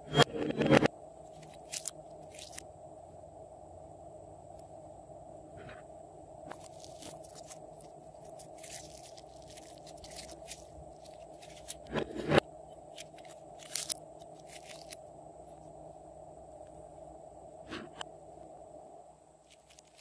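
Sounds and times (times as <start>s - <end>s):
faint steady hum: 0.0s - 20.0s
slime crackling and popping: 6.5s - 11.8s, 12.9s - 15.0s
slime squelch: 6.5s - 11.9s.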